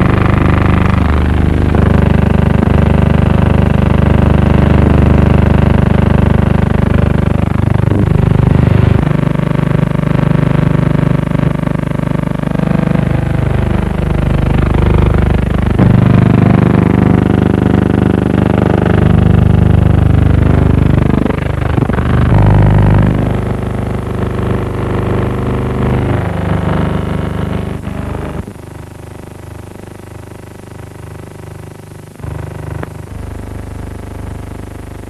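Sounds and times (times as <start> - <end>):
engine drone: 0.0 - 28.7, 32.1 - 33.2.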